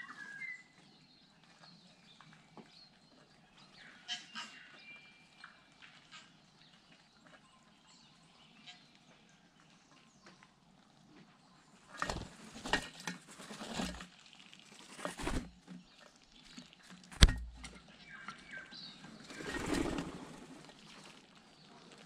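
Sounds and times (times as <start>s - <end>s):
bird wingbeats whooshing: 14.9s - 15.6s, 19.1s - 20.9s
bird landing thumps: 15.0s - 15.7s, 17.1s - 17.8s.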